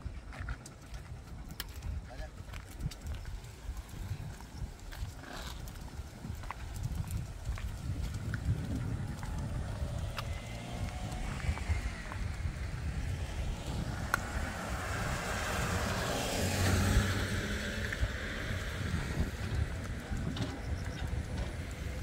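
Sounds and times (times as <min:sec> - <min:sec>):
pickup truck passing: 0:08.2 - 0:22.0.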